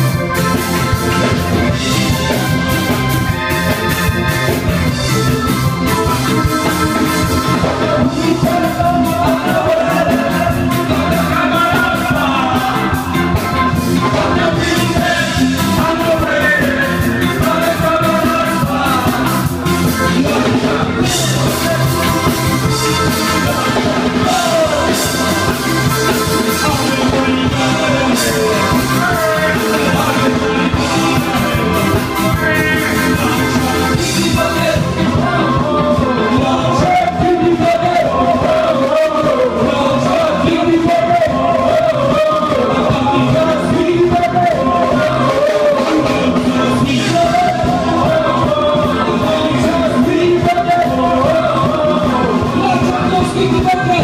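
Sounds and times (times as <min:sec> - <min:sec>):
live band playing: 0:00.0 - 0:54.0
man singing into microphone: 0:00.0 - 0:54.0.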